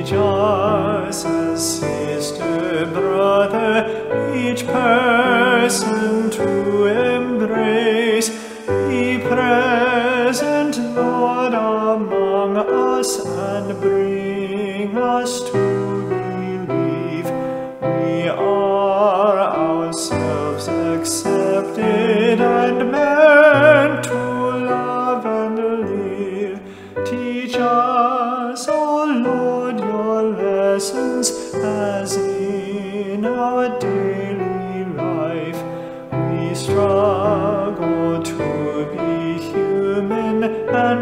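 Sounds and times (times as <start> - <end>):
keyboard accompaniment: 0.0 - 41.0
person singing a hymn: 0.0 - 41.0
singer breathing: 3.8 - 4.2, 8.2 - 9.0, 17.3 - 17.8, 26.6 - 27.0, 31.3 - 31.6, 35.6 - 36.1.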